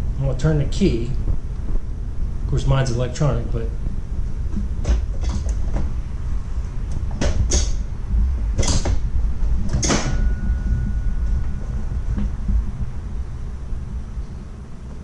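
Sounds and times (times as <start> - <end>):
clunks of parts being handled: 4.8 - 5.9
low rumble: 7.7 - 15.0.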